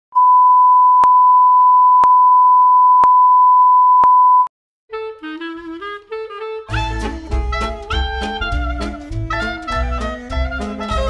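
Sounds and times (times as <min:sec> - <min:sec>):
melodic music: 0:04.9 - 0:11.0.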